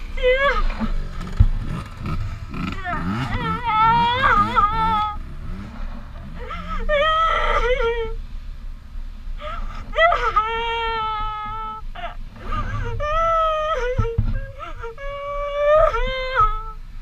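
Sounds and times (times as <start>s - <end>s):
steady low rumble: 0.0s - 17.0s
high-pitched voice wailing: 2.5s - 5.2s.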